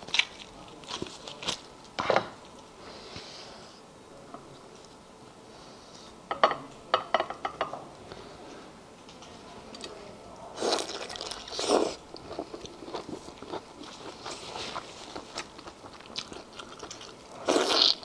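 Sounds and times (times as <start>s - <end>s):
clicks and crackles of eating: 0.0s - 2.7s, 10.8s - 18.0s
soft chewing: 10.6s - 18.0s.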